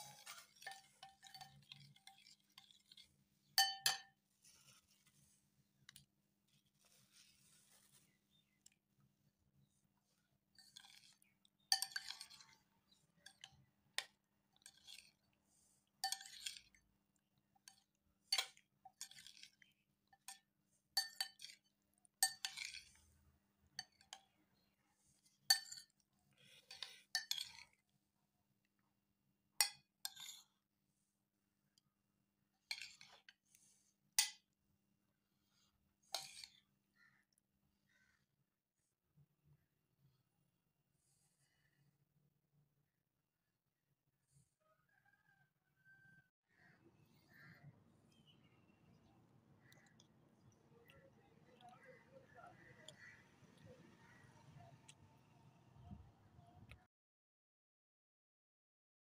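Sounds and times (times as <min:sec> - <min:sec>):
metal spoon stirring in glass bowl: 0:00.0 - 0:05.0, 0:10.6 - 0:15.3, 0:15.9 - 0:16.8, 0:17.6 - 0:23.2, 0:23.8 - 0:27.9, 0:29.6 - 0:30.5, 0:32.6 - 0:33.5, 0:36.1 - 0:36.6.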